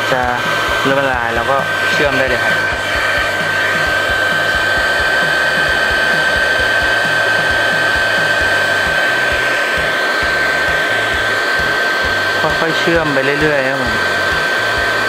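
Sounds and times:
hot-air welding gun blowing: 0.0s - 15.0s.

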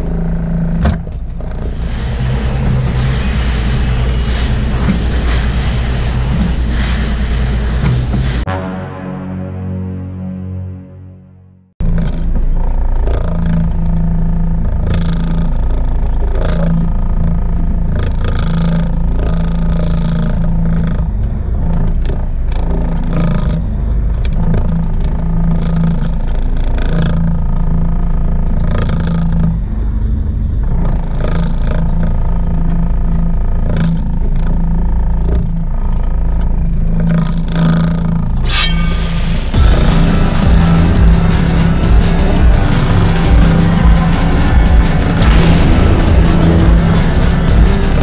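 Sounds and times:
boat engine rumble: 0.0s - 10.9s, 11.8s - 38.5s, 39.3s - 48.0s.

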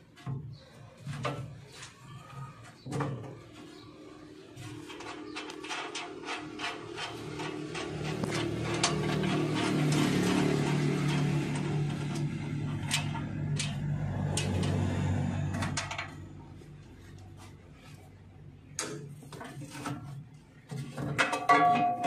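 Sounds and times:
low mechanical hum: 0.0s - 21.2s
clatter: 4.8s - 16.3s.

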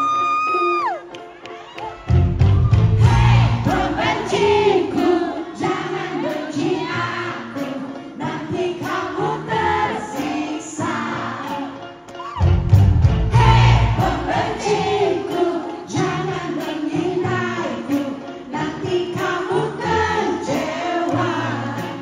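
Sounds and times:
live rock band playing: 1.8s - 5.1s, 8.8s - 19.3s
woman singing: 13.4s - 22.0s.

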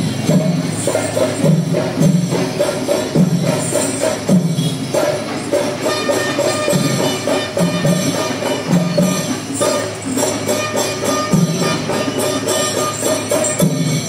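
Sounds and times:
drums: 0.0s - 14.0s
hand cymbals jangling: 0.0s - 14.0s.

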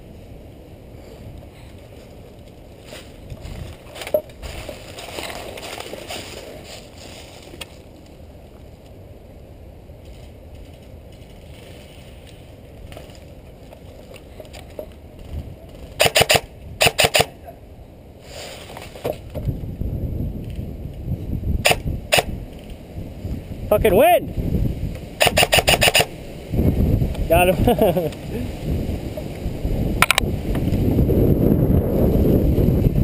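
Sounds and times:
airsoft rifle firing bursts: 16.0s - 17.3s, 25.2s - 26.1s.

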